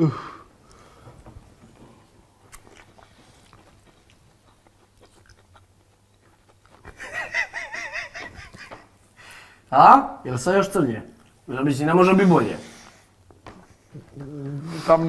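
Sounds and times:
faint chewing of food: 0.6 - 7.1, 12.7 - 15.0.

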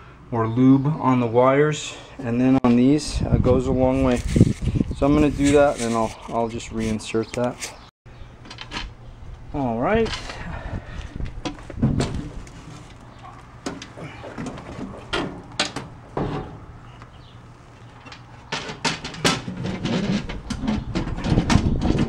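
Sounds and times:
metal panel knocking and clattering: 13.6 - 16.6.

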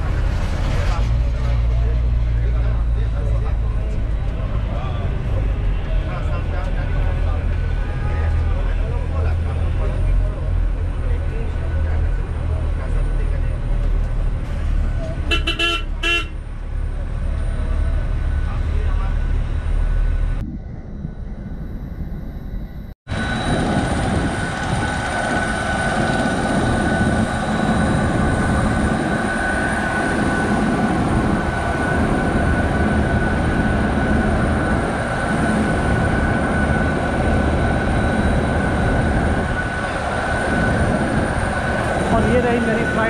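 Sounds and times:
jet airliners whining and rumbling: 0.0 - 43.0.

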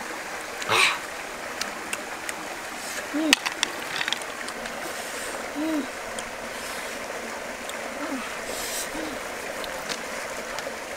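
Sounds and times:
river water flowing: 0.0 - 10.9
person humming while eating: 5.5 - 6.0, 7.7 - 9.3.

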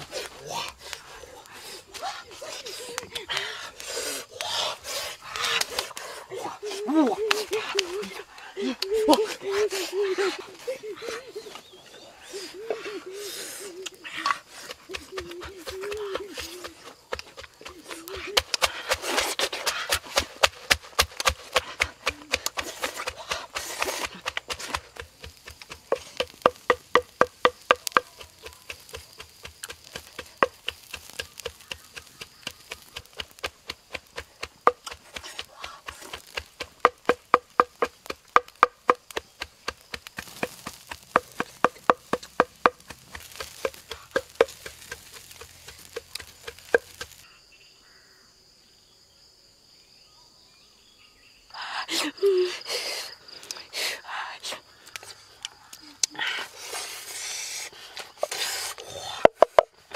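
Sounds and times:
wooden pestle pounding in mortar: 20.1 - 47.2.

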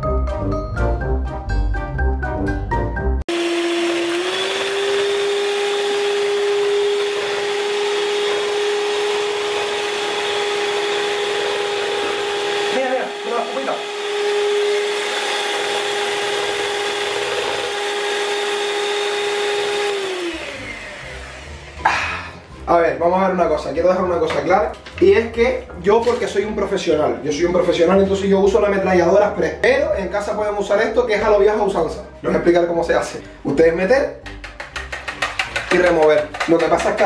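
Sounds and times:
electric hand mixer whining: 3.3 - 22.5.

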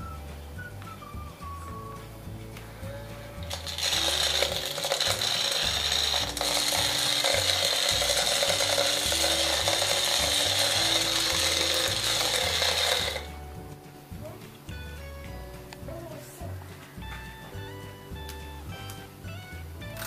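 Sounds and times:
foam balls rattling: 0.0 - 15.8
soft background music: 0.0 - 20.0
small vacuum fan whirring: 2.8 - 13.4.

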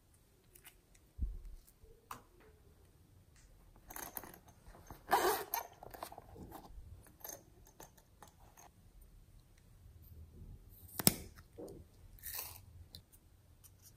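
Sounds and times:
zipper rasp: 5.0 - 5.8.

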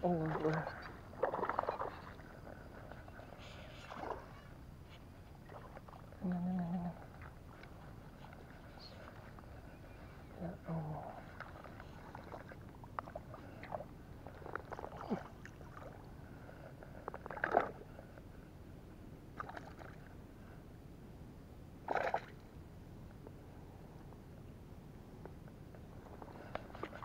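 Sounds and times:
water splashing: 0.0 - 2.8, 3.7 - 4.5, 11.1 - 16.1, 17.2 - 17.8, 19.4 - 20.0, 21.8 - 22.5.

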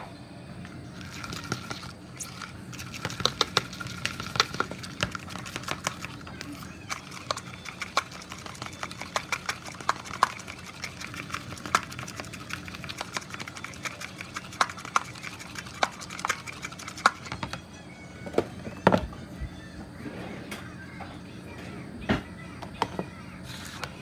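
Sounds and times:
utensil tapping plastic bowl: 3.0 - 6.0.

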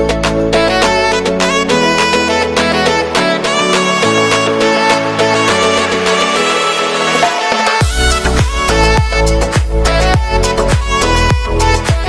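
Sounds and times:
melodic music with sustained tones: 0.0 - 12.0
deep bass beat and kick drum: 7.8 - 12.0.

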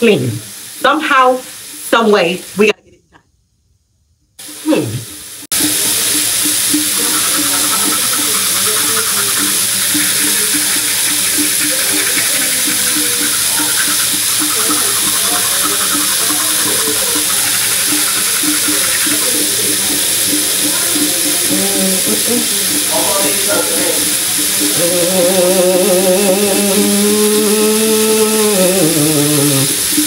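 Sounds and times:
low repeating pulse: 5.6 - 23.0.

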